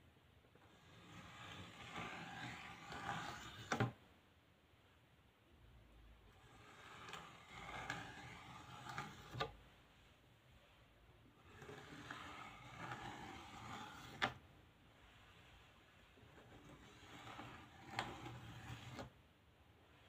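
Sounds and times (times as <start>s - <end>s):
plastic comb scraping painted board: 0.5s - 4.0s, 6.3s - 9.6s, 11.2s - 19.2s.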